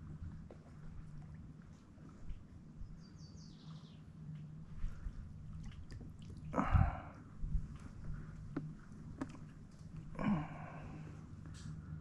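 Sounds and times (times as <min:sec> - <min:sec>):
steady low hum: 0:00.0 - 0:12.0
faint bird chirps: 0:02.8 - 0:04.1.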